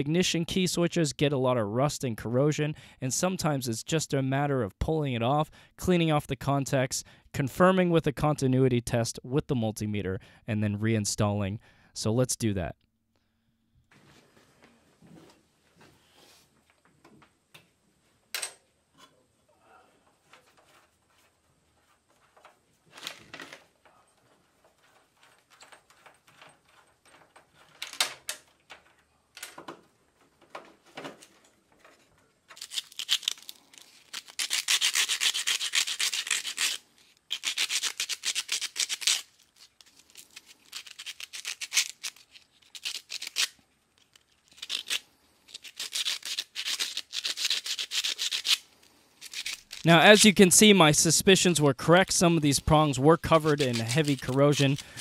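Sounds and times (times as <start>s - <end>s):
sandpaper rubbing on metal prongs: 34.0s - 39.3s, 44.6s - 50.0s, 52.8s - 55.0s.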